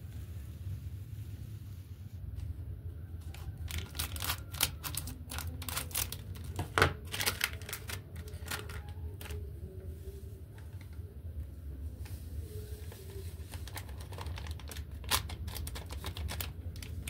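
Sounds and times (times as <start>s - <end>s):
low steady hum: 0.0s - 17.0s
foil sachet crinkling: 3.3s - 9.4s, 12.8s - 17.0s.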